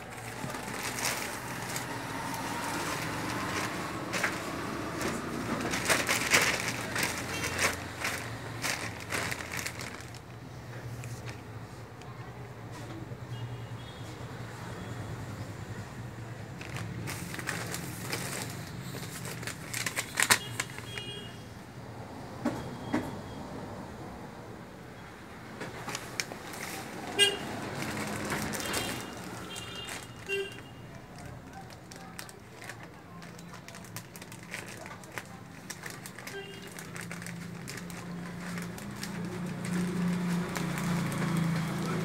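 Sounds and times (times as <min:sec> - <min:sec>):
plastic bags rustling and crinkling: 0:00.0 - 0:12.2, 0:16.4 - 0:21.3, 0:25.6 - 0:42.0.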